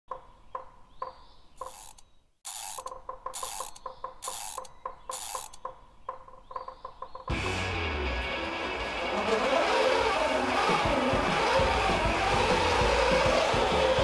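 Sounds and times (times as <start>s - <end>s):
metallic ratchet clicks: 1.6s - 5.7s.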